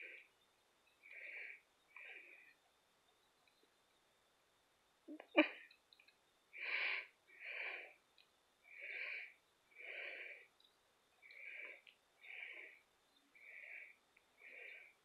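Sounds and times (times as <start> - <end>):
wheezy breathing: 1.0 - 2.6, 6.5 - 8.0, 8.6 - 10.6, 11.2 - 15.0.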